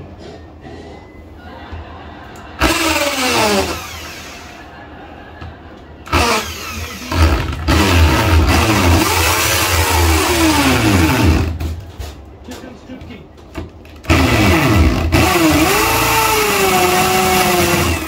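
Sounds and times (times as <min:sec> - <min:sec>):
electric drill boring into wall: 0:02.6 - 0:04.6, 0:06.1 - 0:11.6, 0:14.0 - 0:18.0.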